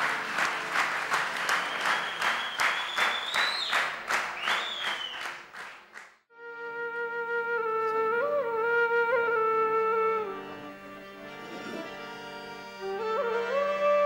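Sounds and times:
audience clapping in rhythm: 0.0s - 6.3s.

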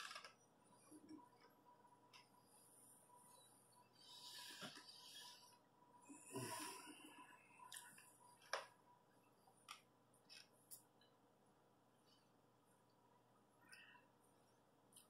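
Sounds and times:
person breathing: 3.9s - 7.8s.

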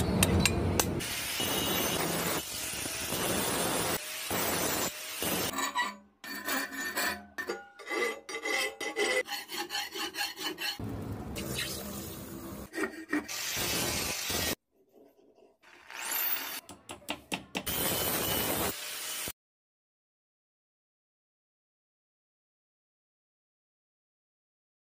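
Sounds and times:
angle grinder on steel: 1.0s - 10.8s, 15.7s - 16.6s, 17.7s - 19.3s
hand file rasping on steel: 5.5s - 10.8s, 12.7s - 13.4s.

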